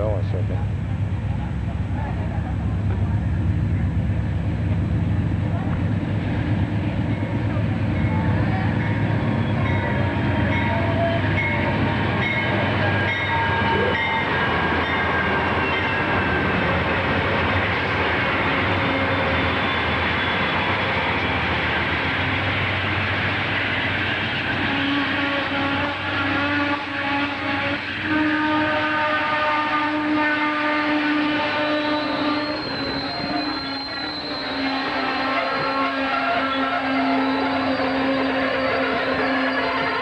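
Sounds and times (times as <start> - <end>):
diesel locomotive rumble: 0.0 - 40.0
train wheel noise: 0.0 - 40.0
high squealing tones: 31.4 - 40.0.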